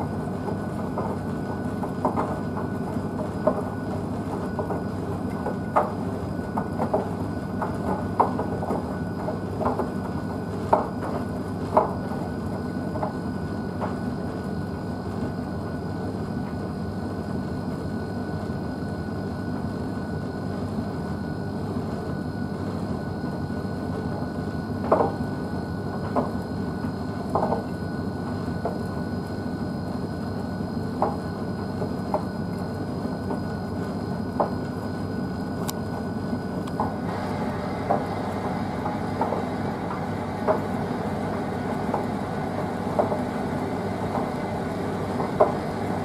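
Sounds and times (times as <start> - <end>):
faint steady whine: 0.0 - 46.0
washing machine tumbling: 0.0 - 46.0
heavy load knocking in drum: 37.1 - 43.3.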